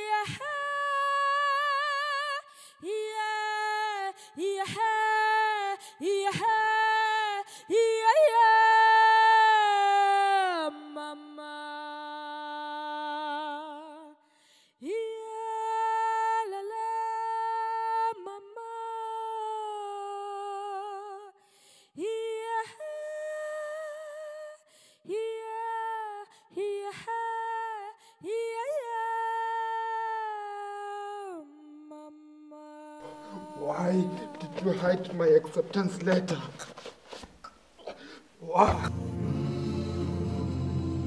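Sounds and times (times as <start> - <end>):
woman singing wordless held notes: 25.1 - 35.3.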